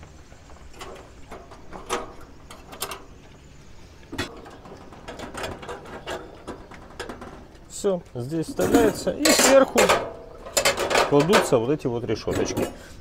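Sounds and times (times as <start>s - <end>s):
metal grill parts knocking: 0.6s - 3.3s, 4.1s - 12.9s.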